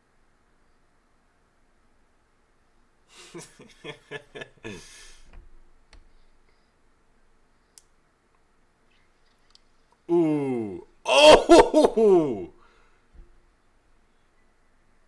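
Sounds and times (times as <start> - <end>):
breath: 4.7 - 5.4, 6.1 - 6.8, 12.6 - 13.1
person speaking in broken syllables: 10.1 - 12.5.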